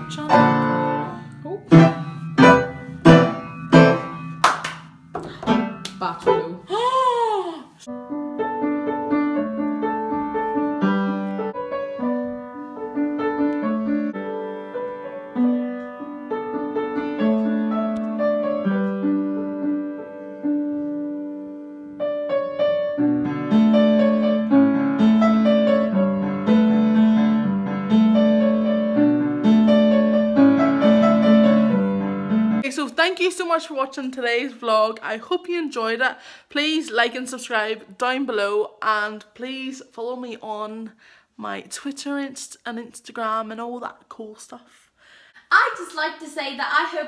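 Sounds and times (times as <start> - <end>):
piano melody over chords: 0.0 - 6.6, 7.9 - 32.6.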